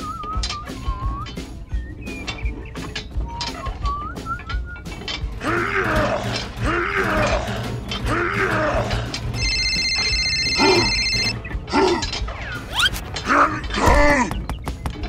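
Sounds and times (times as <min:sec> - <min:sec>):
low background music: 0:00.0 - 0:15.0
straining grunts: 0:05.3 - 0:09.3, 0:10.6 - 0:11.0, 0:11.6 - 0:14.4.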